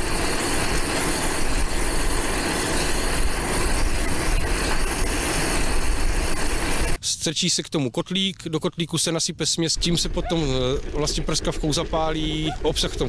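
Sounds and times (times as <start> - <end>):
gas torch roaring: 0.0 - 7.0.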